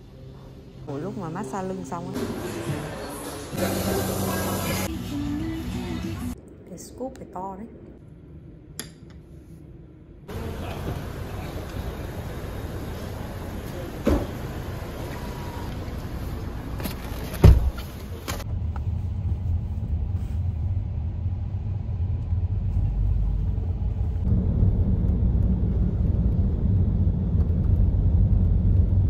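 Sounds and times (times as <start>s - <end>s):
outdoor street noise: 0.0s - 6.5s, 10.0s - 29.0s
taxi driving rumble from inside: 10.3s - 29.0s.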